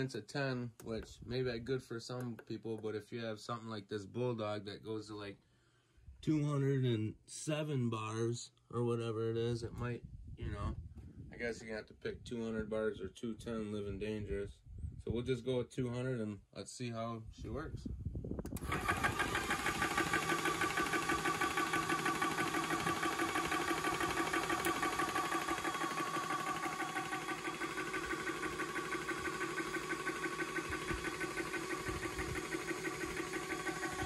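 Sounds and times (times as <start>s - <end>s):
air compressor pump pulsing: 18.5s - 34.0s.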